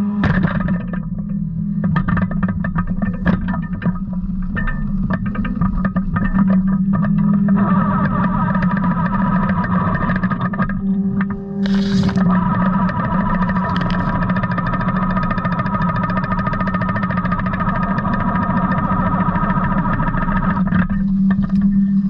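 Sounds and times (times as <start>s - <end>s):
excavator engine hum: 10.1s - 22.0s
cutter bar clattering: 11.6s - 12.3s.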